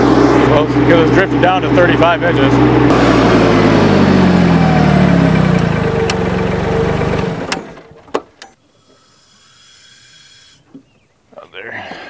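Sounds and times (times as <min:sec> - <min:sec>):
tractor engine running: 0:00.0 - 0:08.6.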